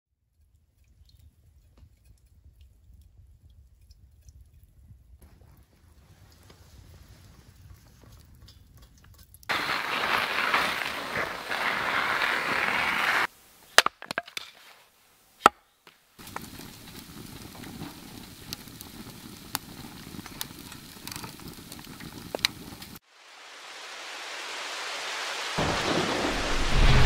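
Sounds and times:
wood fire crackling and popping: 5.2s - 14.5s, 16.2s - 23.0s
steady rushing hiss: 9.5s - 13.7s, 16.1s - 27.0s.

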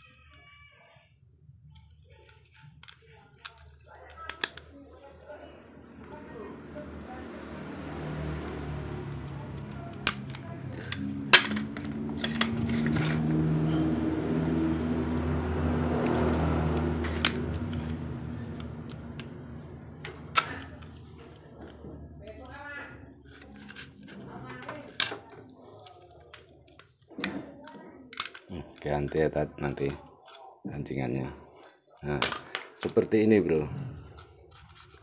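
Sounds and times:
low droning hum: 5.5s - 23.3s
metallic tool clicks: 27.2s - 28.8s.

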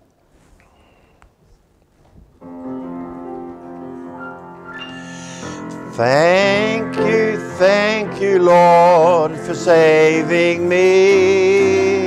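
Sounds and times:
keyboard playing held chords: 2.4s - 12.0s
voices singing: 5.9s - 12.0s.

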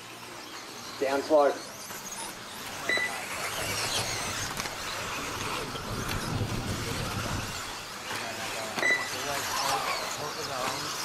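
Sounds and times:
electric motors whining: 0.0s - 11.0s.

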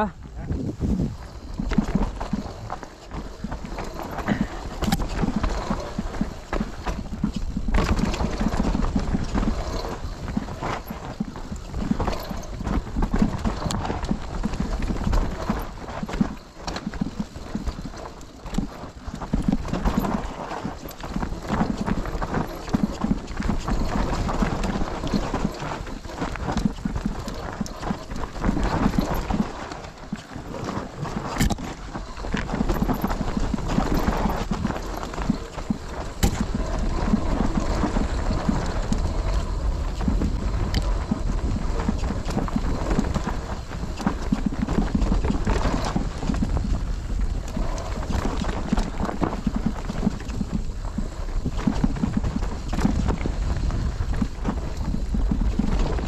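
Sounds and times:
bike tyres rattling over dirt and stones: 0.0s - 56.0s
chain and frame clattering: 1.1s - 53.4s.

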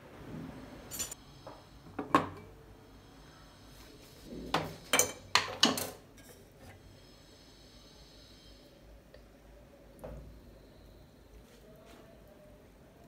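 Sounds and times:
kitchenware knocking and clinking: 2.0s - 2.5s, 4.5s - 6.0s.

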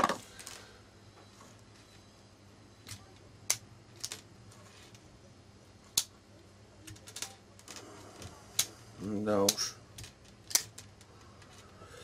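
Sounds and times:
faint handling noise: 3.9s - 5.2s.

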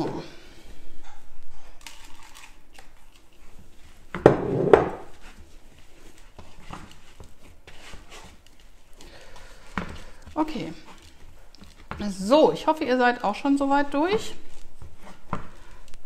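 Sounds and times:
hands kneading dough: 0.0s - 16.0s.

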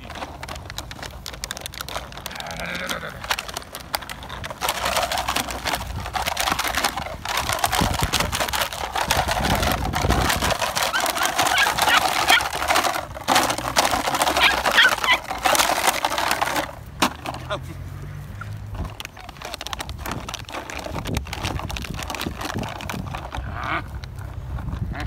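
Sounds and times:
plastic bag crinkling: 0.0s - 25.0s
puppy yips: 10.9s - 12.5s, 14.3s - 15.3s.

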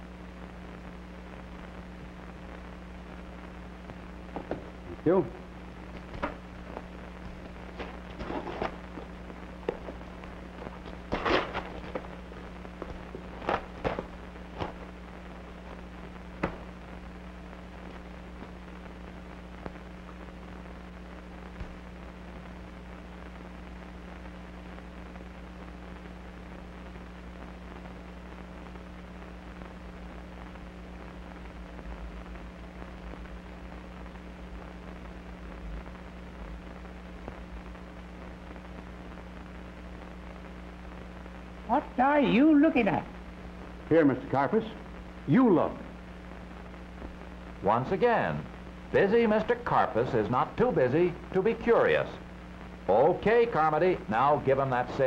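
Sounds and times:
film soundtrack hum and hiss: 0.0s - 55.0s
crackers crackling and snapping: 3.8s - 20.4s.

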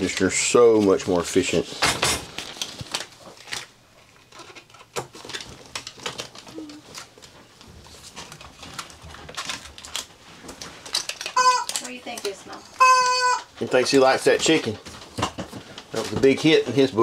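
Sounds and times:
foil tape crinkling: 2.3s - 17.0s
foil tape tearing: 10.8s - 12.4s.

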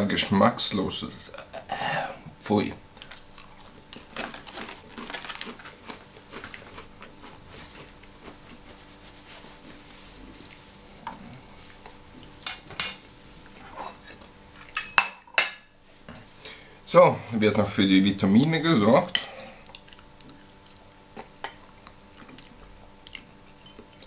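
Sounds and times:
cracker packet crinkling: 3.0s - 7.4s.

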